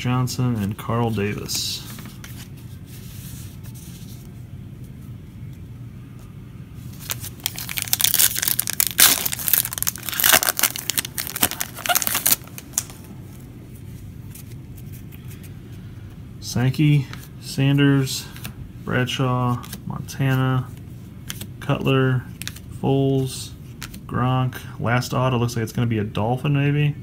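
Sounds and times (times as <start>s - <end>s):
foil wrapper tearing and crinkling: 7.0s - 12.9s.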